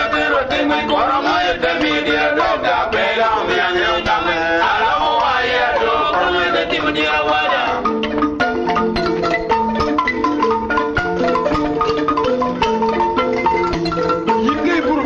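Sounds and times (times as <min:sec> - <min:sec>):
male voices singing chorus: 0:00.0 - 0:07.8
instrumental backing: 0:00.0 - 0:15.0.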